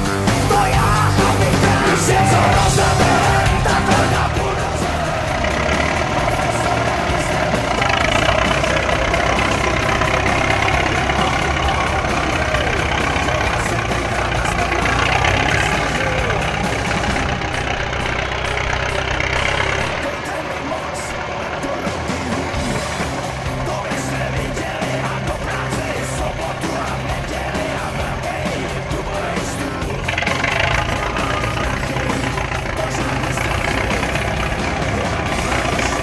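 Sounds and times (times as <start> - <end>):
crawler tractor diesel engine: 0.0 - 36.0.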